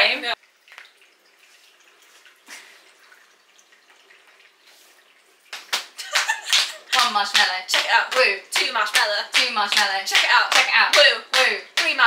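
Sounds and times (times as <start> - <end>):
hand claps and slaps: 5.5 - 12.0.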